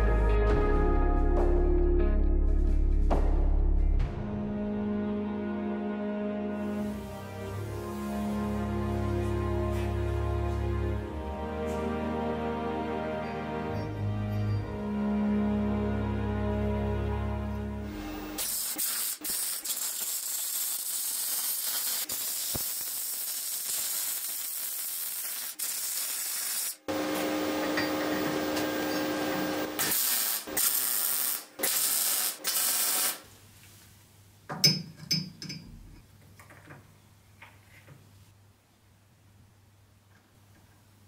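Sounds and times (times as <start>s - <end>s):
arc welding hiss: 17.9s - 27.5s, 28.4s - 33.3s.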